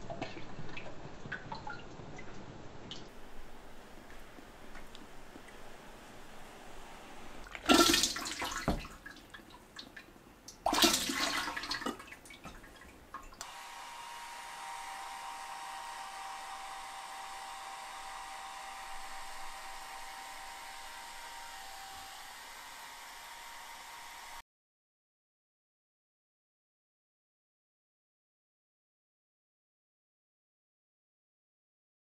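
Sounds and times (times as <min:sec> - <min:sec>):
liquid splashing into metal bowl: 0:07.4 - 0:10.0, 0:10.6 - 0:13.4
hair dryer whirring: 0:13.4 - 0:24.4.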